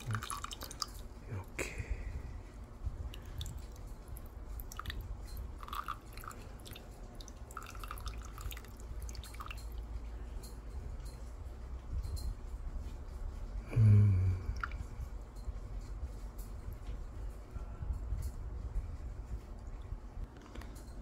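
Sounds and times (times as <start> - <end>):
liquid trickling onto ice: 0.0 - 1.5, 3.1 - 10.0
small drips and clicks: 0.0 - 1.8, 2.4 - 13.0, 14.5 - 17.1.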